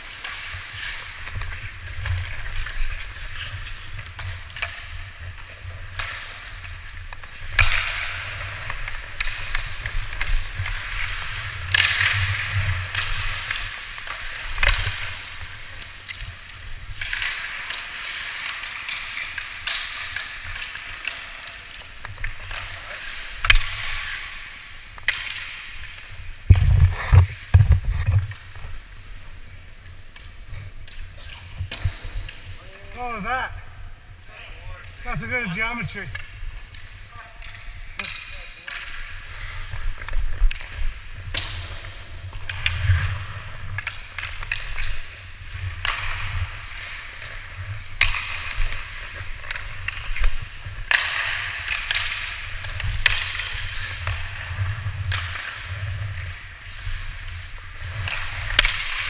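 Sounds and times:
skates scraping on ice: 0.0 - 59.0
stick and puck clacks: 0.0 - 59.0.

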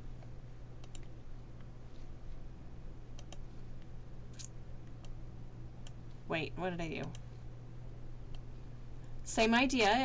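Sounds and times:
low steady hum: 0.0 - 10.0
computer mouse clicks: 0.8 - 1.7, 3.1 - 3.5.

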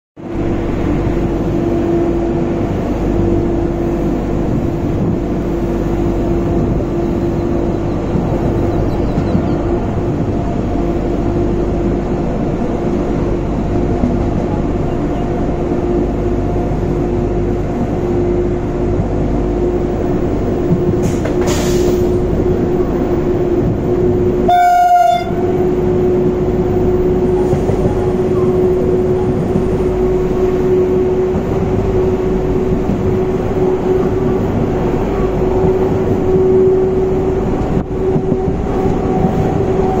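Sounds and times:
train carriage rumbling: 0.2 - 40.0.

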